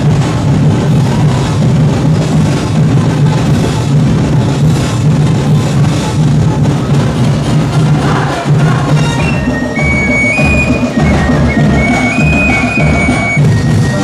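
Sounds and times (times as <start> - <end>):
fast festival drumming: 0.0 - 14.0
high held melody: 8.9 - 14.0.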